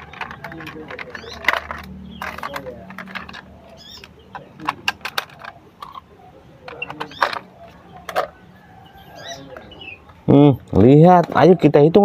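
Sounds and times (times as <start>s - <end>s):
plastic toy parts clicking: 0.0s - 8.3s.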